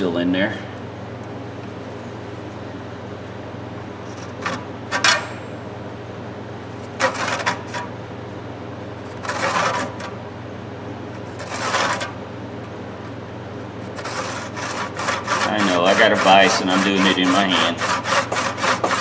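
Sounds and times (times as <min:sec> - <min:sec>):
handsaw rasping through wood: 0:09.2 - 0:10.0, 0:11.4 - 0:12.1, 0:13.9 - 0:19.0.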